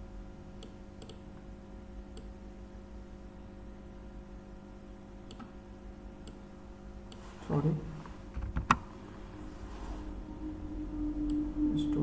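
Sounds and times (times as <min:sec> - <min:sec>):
faint electrical hum: 0:00.0 - 0:12.0
computer mouse clicks: 0:00.6 - 0:01.2, 0:02.1 - 0:02.3, 0:05.3 - 0:05.5.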